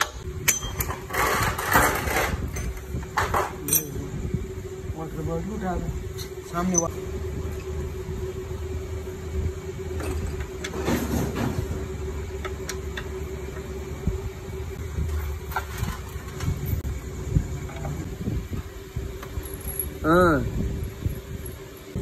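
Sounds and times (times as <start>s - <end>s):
steady hum and low rumble: 0.0s - 22.0s
metal clinks of hand tools: 3.7s - 4.0s.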